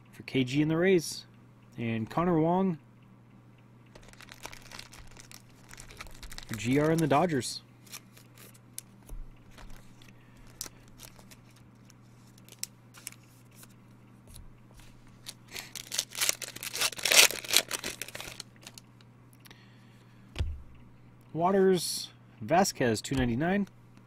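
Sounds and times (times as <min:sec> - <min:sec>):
faint low hum: 0:00.0 - 0:24.0
foil wrapper tearing and crinkling: 0:04.0 - 0:08.9, 0:09.6 - 0:13.2, 0:15.2 - 0:18.8.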